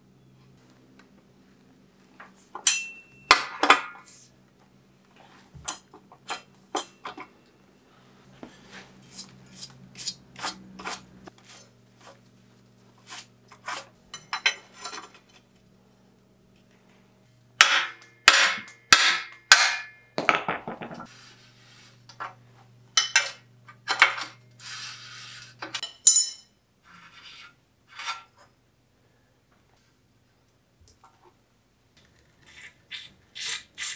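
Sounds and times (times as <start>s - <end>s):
metal clanks and scrapes: 13.5s - 15.5s, 23.0s - 28.5s.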